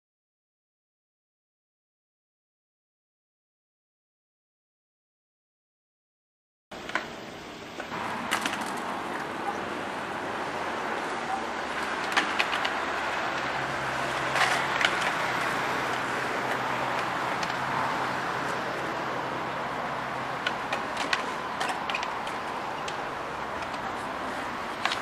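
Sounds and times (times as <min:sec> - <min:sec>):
street traffic hum: 0:06.7 - 0:25.0
skateboards clacking: 0:07.8 - 0:25.0.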